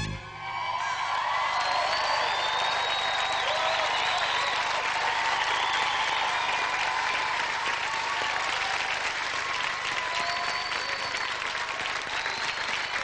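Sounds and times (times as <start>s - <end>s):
audience applauding: 0.4s - 13.0s.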